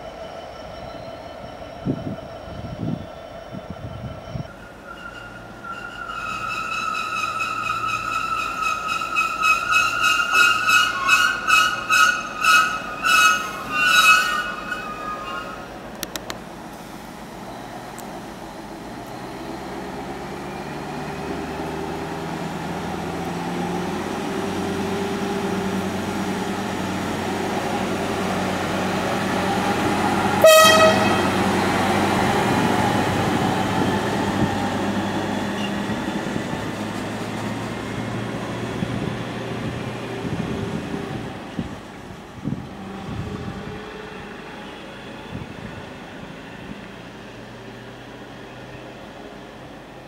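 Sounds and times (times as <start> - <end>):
wheels rumbling on rails: 0.0 - 50.0
short high horn toot: 30.4 - 31.4.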